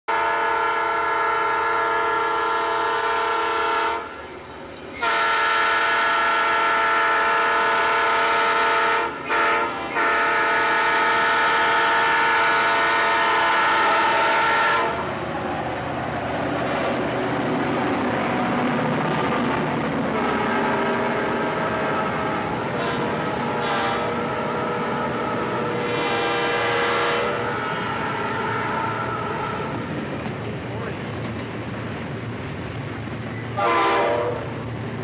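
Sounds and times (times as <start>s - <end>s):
locomotive air horn blasts: 0.1s - 4.2s, 5.0s - 15.2s, 18.2s - 29.9s, 33.6s - 34.6s
approaching train noise: 0.1s - 35.0s.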